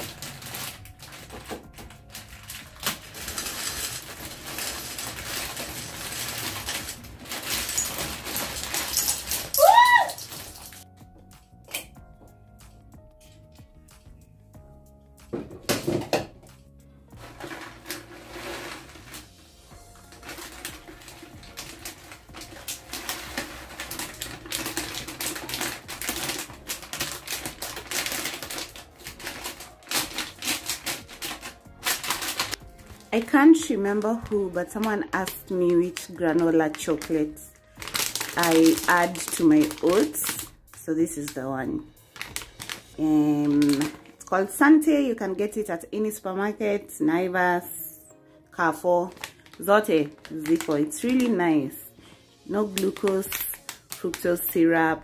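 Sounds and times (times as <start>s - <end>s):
pasta pouring into glass jar: 2.2s - 10.8s, 17.2s - 32.6s.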